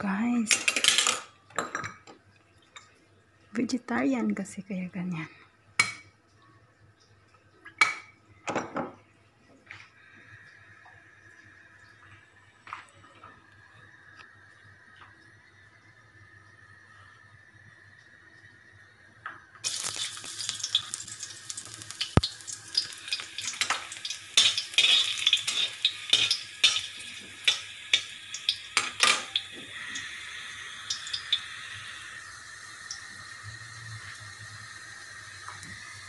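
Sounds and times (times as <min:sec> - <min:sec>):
garlic sizzling in hot oil: 0:19.6 - 0:36.0.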